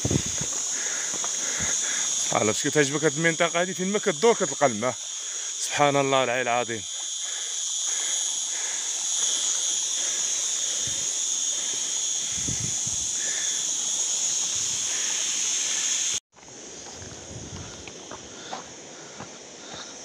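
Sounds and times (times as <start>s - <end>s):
footsteps on dirt path: 0.0s - 2.6s, 16.3s - 20.0s.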